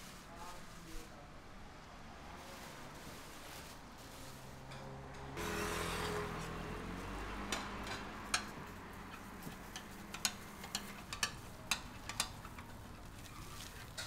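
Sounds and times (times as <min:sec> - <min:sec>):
metal spatula scraping griddle: 0:05.4 - 0:06.6, 0:09.1 - 0:14.0.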